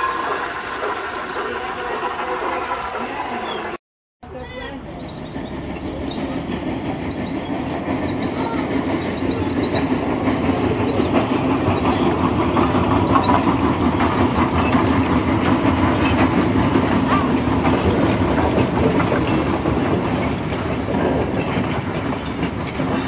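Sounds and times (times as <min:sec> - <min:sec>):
model train wheels clicking on rails: 0:05.4 - 0:23.0.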